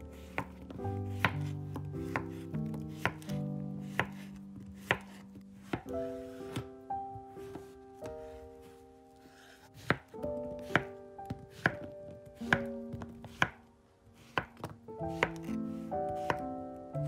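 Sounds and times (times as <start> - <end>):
soft background music: 0.0 - 17.0
knife chopping on cutting board: 0.2 - 6.6, 9.8 - 13.6, 14.2 - 16.4.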